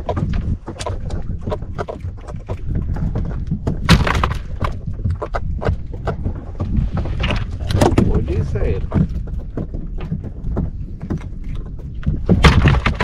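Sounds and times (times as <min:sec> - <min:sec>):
low rumble: 0:00.0 - 0:13.0.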